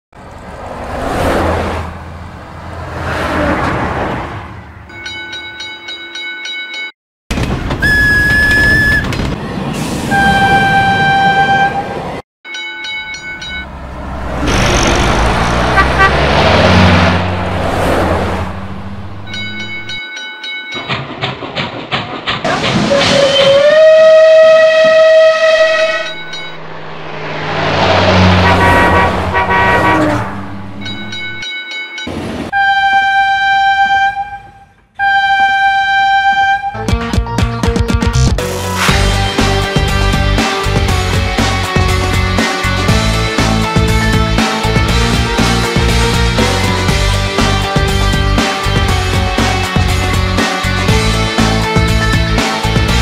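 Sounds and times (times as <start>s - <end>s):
rush of passing train: 0.2s - 4.8s, 8.8s - 12.2s, 13.2s - 31.4s, 32.1s - 32.6s
road vehicles passing: 0.2s - 5.0s, 13.1s - 20.0s, 24.7s - 31.4s, 38.4s - 53.0s
level-crossing warning bell ringing: 4.9s - 6.9s, 12.5s - 14.0s, 19.2s - 21.1s, 25.8s - 26.6s, 30.8s - 32.1s
train whistle: 7.8s - 9.1s, 10.1s - 12.0s, 22.9s - 26.1s, 32.6s - 36.9s
train clatter: 19.3s - 23.8s.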